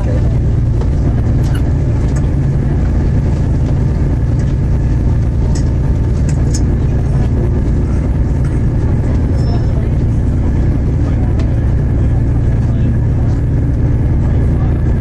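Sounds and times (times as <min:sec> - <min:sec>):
train engine and wheels rumbling: 0:00.0 - 0:15.0
faint short squeaks: 0:01.4 - 0:01.7.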